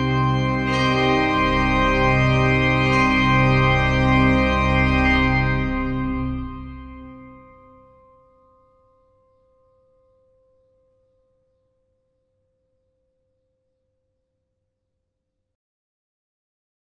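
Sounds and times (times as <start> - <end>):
held music chord: 0.0 - 8.0.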